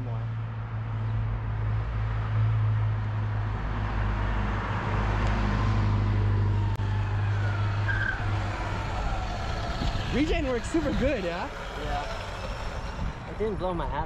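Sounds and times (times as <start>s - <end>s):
road rumble: 0.0s - 14.0s
wind: 0.0s - 14.0s
electric motor whine: 6.8s - 14.0s.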